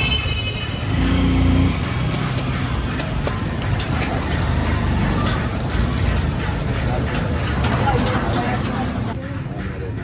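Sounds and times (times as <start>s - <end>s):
road traffic rumble: 0.0s - 10.0s
sharp clicks and taps: 1.8s - 8.8s.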